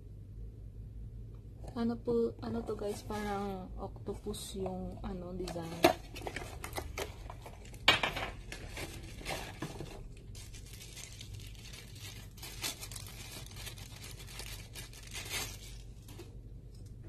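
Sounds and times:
packaging crinkling and tearing: 5.5s - 16.4s.

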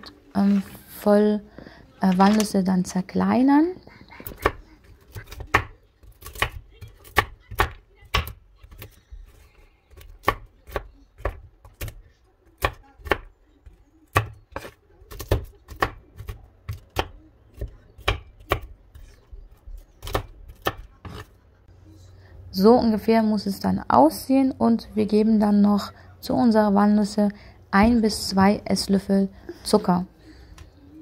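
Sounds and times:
knife chopping on wooden board: 14.1s - 21.3s.

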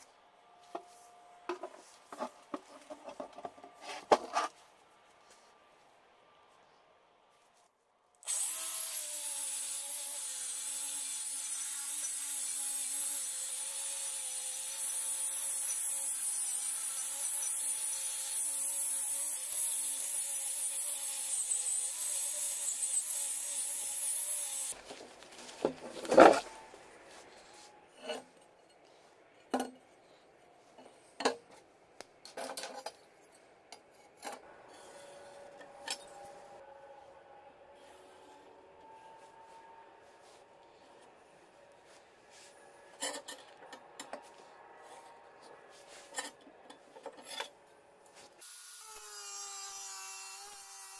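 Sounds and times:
angle grinder grinding metal: 8.3s - 24.8s.

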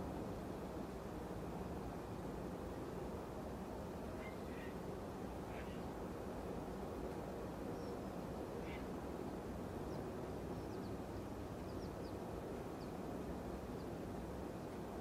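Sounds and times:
low outdoor rumble: 0.0s - 15.0s
small birds chirping: 4.2s - 4.8s, 7.7s - 9.0s, 9.7s - 15.0s.

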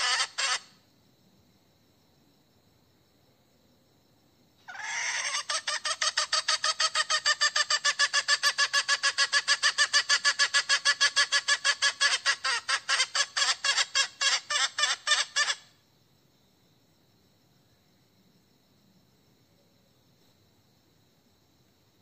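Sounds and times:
hen clucking rapidly: 0.0s - 0.6s, 4.7s - 15.6s.

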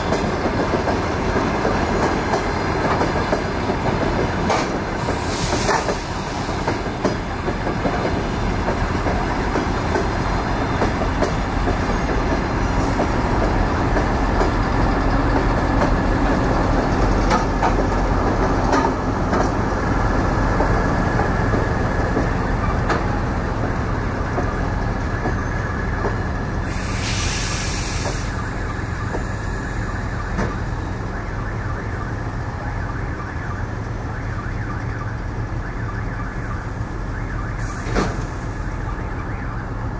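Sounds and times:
train wheels rumbling on rails: 0.0s - 39.9s
short hiss: 26.7s - 28.4s.

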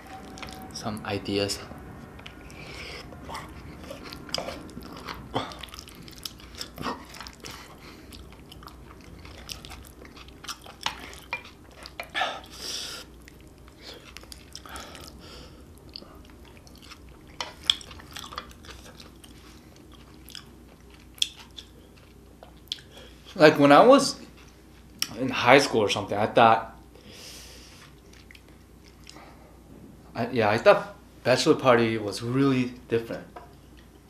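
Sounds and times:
chewing and wet mouth sounds: 2.0s - 23.4s, 27.7s - 29.4s.

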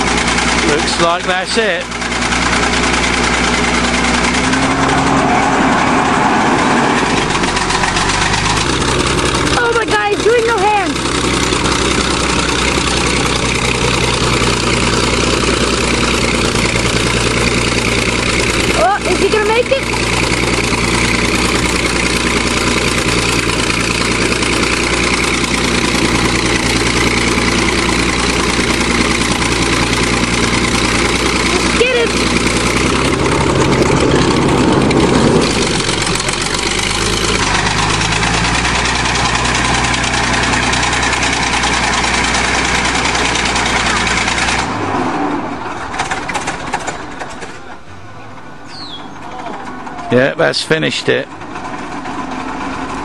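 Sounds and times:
bulldozer engine running: 0.0s - 53.0s.

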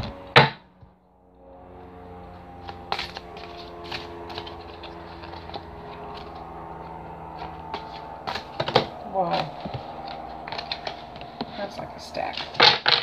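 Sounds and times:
steady low hum: 0.0s - 13.0s
cards being shuffled: 2.6s - 5.6s, 9.6s - 11.6s.

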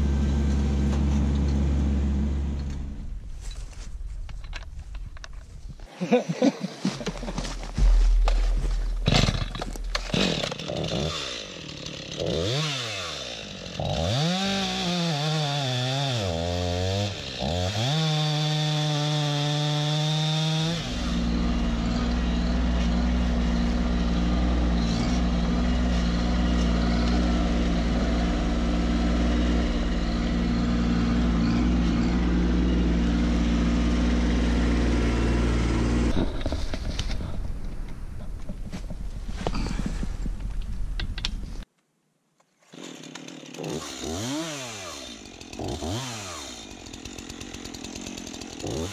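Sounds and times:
chainsaw cutting log: 7.0s - 37.8s, 42.6s - 48.9s.

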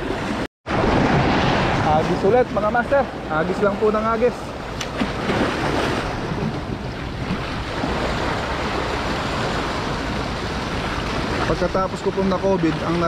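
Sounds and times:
waves breaking over rocks: 0.0s - 13.0s.

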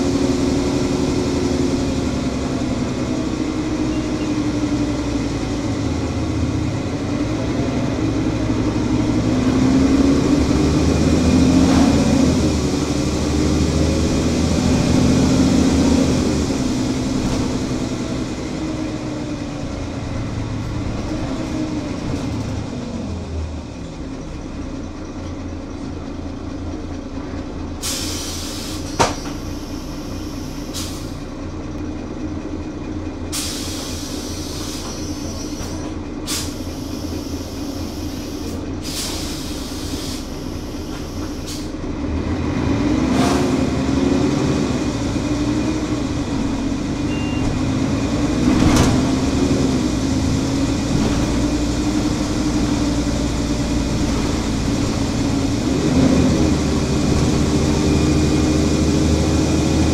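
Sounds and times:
bus diesel engine idling: 0.0s - 59.9s
pneumatic air hiss: 27.8s - 31.2s, 33.3s - 41.7s.

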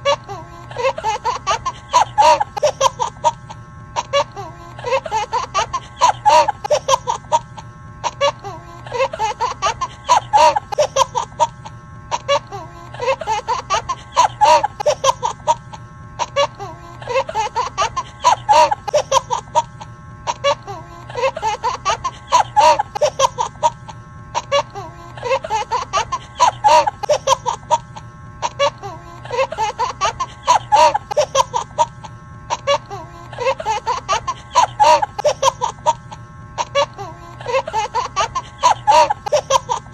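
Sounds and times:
looped laughter sound effect: 0.0s - 39.9s.

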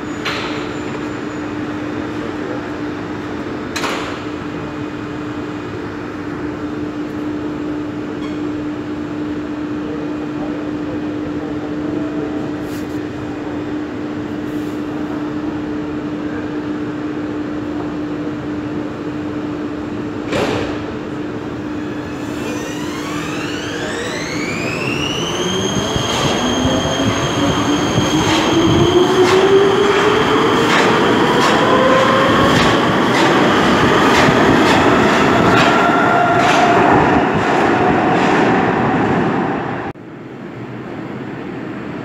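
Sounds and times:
train equipment hum: 11.4s - 42.0s.

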